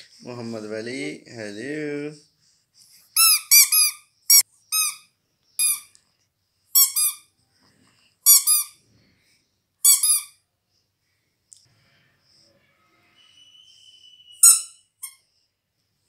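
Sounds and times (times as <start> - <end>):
rubber squeaky toy squeaking: 3.1 - 5.9, 6.7 - 7.3, 8.2 - 8.8, 9.8 - 10.4, 14.4 - 15.3.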